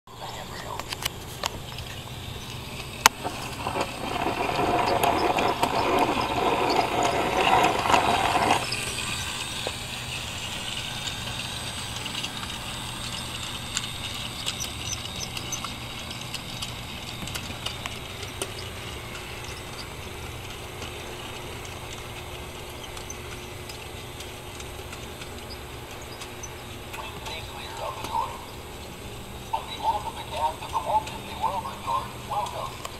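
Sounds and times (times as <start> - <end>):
model trains running on track: 0.1 - 32.9
loud rattling: 1.4 - 31.6.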